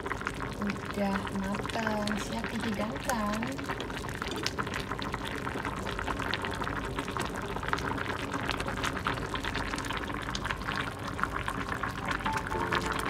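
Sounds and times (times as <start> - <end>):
soup bubbling: 0.0 - 13.0
music: 12.0 - 13.0.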